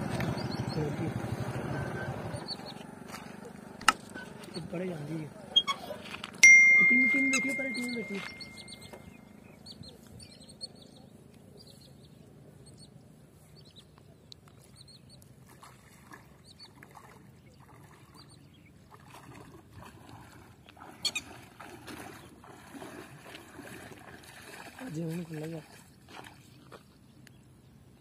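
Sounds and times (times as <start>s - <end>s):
water sloshing from wading: 0.0s - 6.3s, 14.4s - 27.6s.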